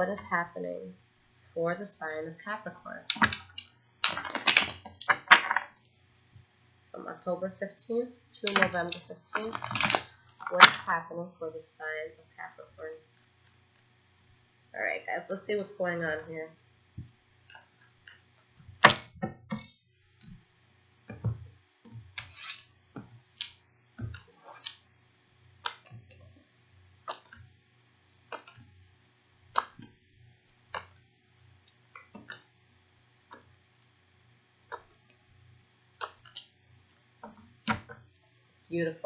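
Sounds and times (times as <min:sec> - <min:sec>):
faint steady hum: 0:00.0 - 0:39.0
cards being shuffled: 0:03.1 - 0:05.7, 0:08.4 - 0:10.8, 0:22.1 - 0:24.8.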